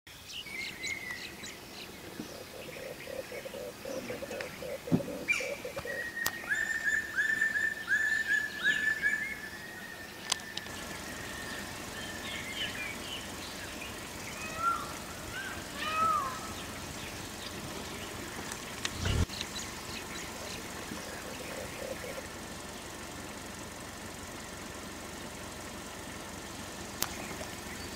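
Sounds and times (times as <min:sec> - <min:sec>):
bird chirps and calls: 0:00.1 - 0:23.5
birds whistling: 0:00.2 - 0:25.5, 0:26.4 - 0:27.9.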